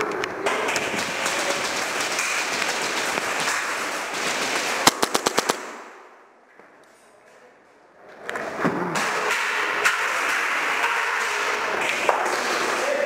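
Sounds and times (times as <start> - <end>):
airsoft gunfire clatter: 0.4 - 6.2
sharp gunshot cracks: 4.4 - 6.1.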